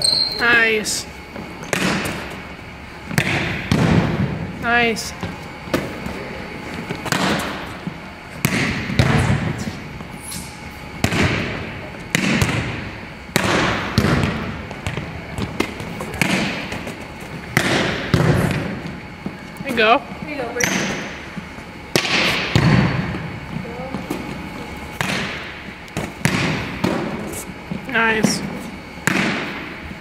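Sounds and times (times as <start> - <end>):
forearms passing volleyball: 1.3 - 29.8
hand hitting volleyball: 3.1 - 4.3, 6.8 - 7.7, 8.4 - 9.5, 11.0 - 19.4, 21.9 - 23.2, 24.9 - 27.3.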